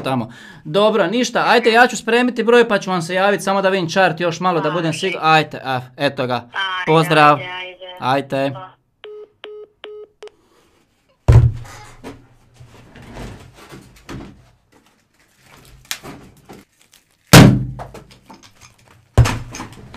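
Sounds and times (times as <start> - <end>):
rustling: 10.8 - 17.4
heavy thumps: 11.3 - 11.8.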